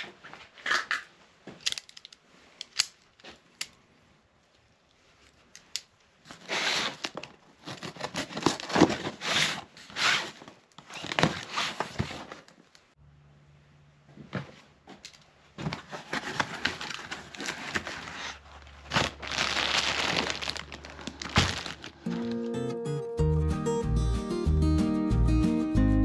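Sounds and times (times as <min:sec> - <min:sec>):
knife slitting packing tape: 0:06.4 - 0:11.7
cardboard flaps tearing and scraping: 0:06.4 - 0:12.5, 0:15.6 - 0:22.2.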